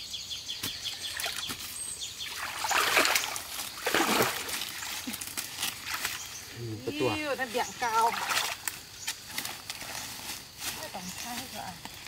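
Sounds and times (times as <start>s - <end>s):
person wading through water: 2.2s - 5.2s, 8.0s - 8.6s.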